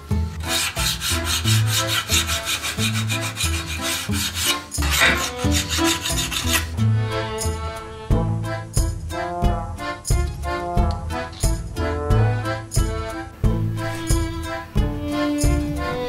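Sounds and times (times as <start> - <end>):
background music: 0.0 - 16.0
hand file rasping on metal: 0.4 - 6.8.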